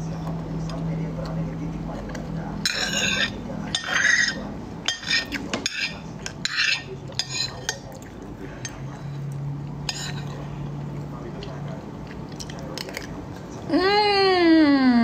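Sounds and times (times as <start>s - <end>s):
cutlery scraping a ceramic plate: 2.6s - 7.8s, 9.8s - 10.4s.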